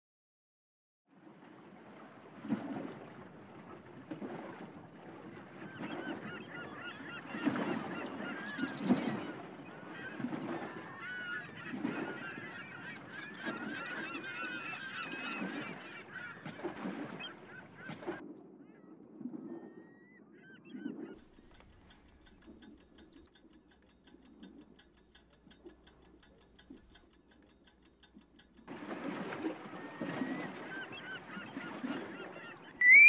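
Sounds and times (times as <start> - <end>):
birds calling and honking: 5.5 - 18.2, 29.5 - 33.0.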